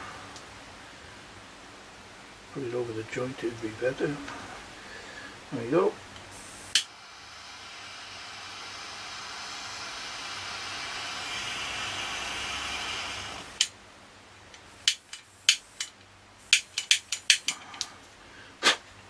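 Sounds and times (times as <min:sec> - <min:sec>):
lighter flame hissing: 0:06.2 - 0:13.8, 0:14.8 - 0:18.0.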